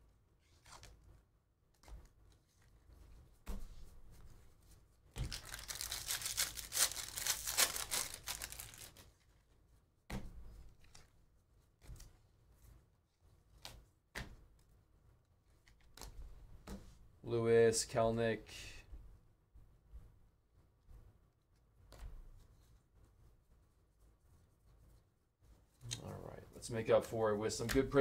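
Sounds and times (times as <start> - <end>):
foil wrapper tearing and crinkling: 5.2 - 9.0.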